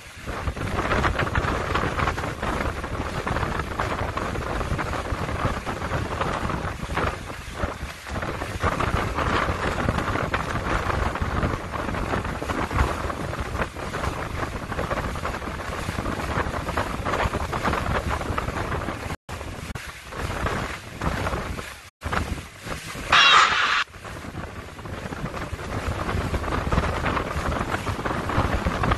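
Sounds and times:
wind on microphone: 0.0s - 28.9s
water rushing: 14.8s - 28.9s.

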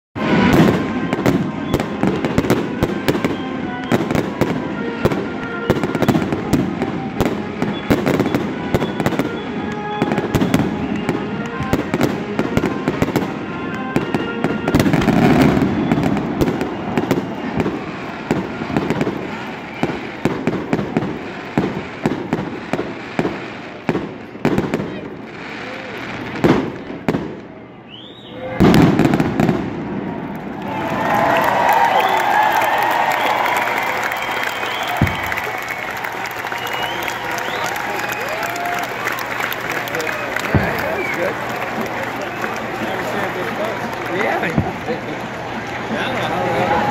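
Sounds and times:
fireworks bursting and crackling: 0.2s - 27.6s, 28.5s - 46.9s.

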